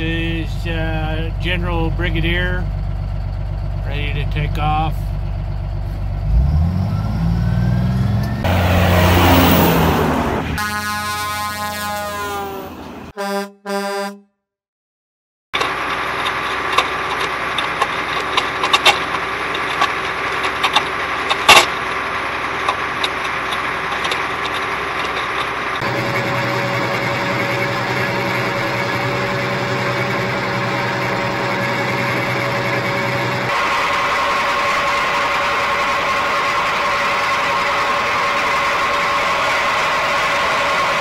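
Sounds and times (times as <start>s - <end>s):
diesel engine running: 0.0s - 13.1s, 15.6s - 41.0s
vehicle engine revving: 0.5s - 13.1s, 25.8s - 41.0s
long horn tone: 8.2s - 14.3s
short horn honks: 10.6s - 14.4s.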